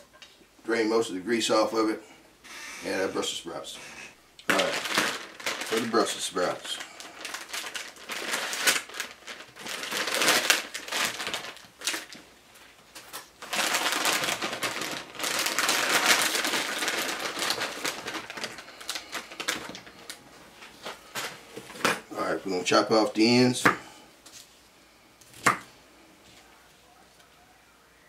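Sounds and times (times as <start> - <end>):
plastic bag crinkling: 4.4 - 23.4.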